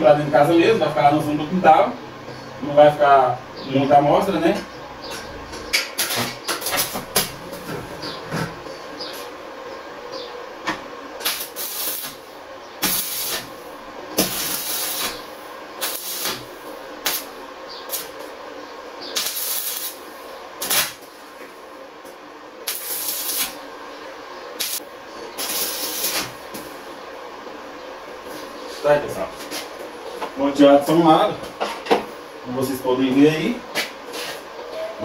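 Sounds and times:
arc welding crackling bursts: 5.7s - 7.6s, 11.2s - 18.3s, 19.1s - 21.3s, 22.6s - 23.6s, 24.6s - 26.8s.

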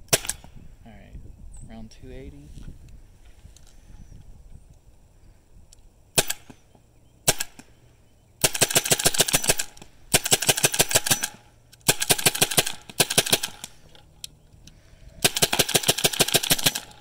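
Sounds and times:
paintball marker firing: 0.0s - 0.6s, 6.2s - 7.7s.

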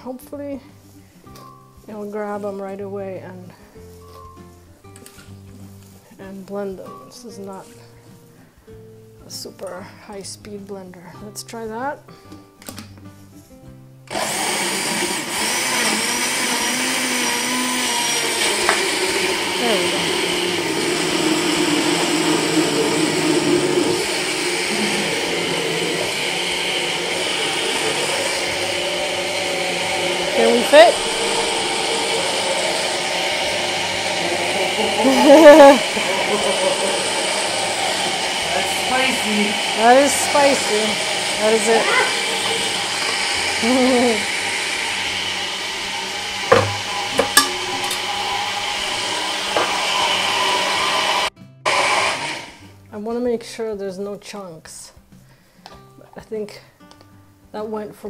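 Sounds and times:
blender running: 14.1s - 52.6s.

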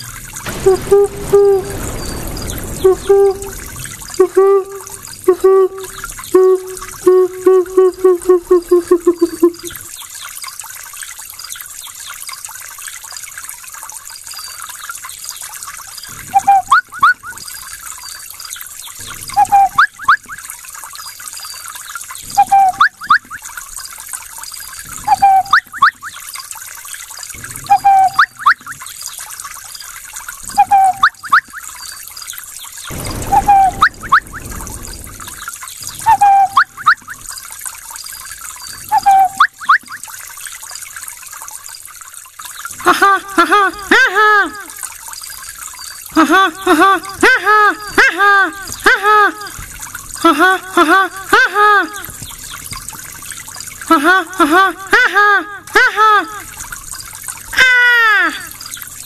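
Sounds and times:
running water trickling: 0.0s - 59.0s
person imitating bird call: 4.2s - 9.8s, 38.9s - 39.4s, 42.8s - 44.8s, 46.2s - 49.6s, 50.2s - 52.1s, 53.9s - 56.5s, 57.6s - 58.6s.

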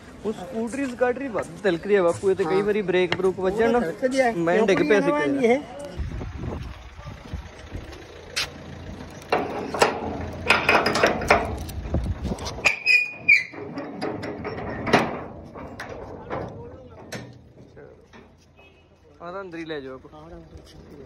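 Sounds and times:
low rumble: 6.0s - 12.7s
padlock and gate bolt clanking: 9.2s - 11.8s, 12.6s - 17.6s
metal squeak: 12.5s - 16.0s.

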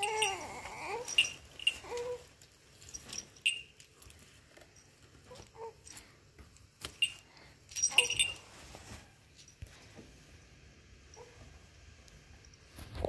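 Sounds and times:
beads and trinkets clinking: 0.0s - 6.0s, 6.8s - 8.6s.

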